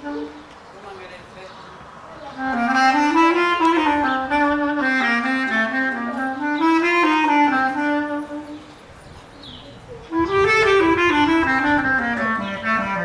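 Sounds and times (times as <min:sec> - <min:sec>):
bass clarinet melody: 0:00.0 - 0:00.4, 0:02.4 - 0:08.7, 0:09.8 - 0:13.0.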